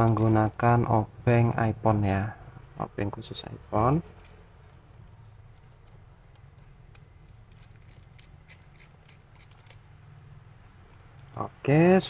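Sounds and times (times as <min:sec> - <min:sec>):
screwdriver clicks and scratches: 0:04.2 - 0:09.9.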